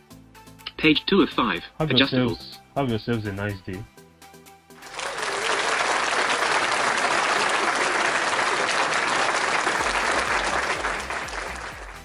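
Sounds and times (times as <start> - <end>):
crowd applause: 4.8 - 12.0.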